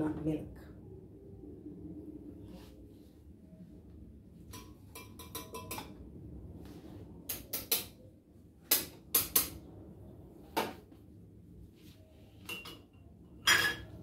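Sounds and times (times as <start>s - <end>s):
metal kitchenware clinking: 4.5s - 5.9s, 12.4s - 14.0s.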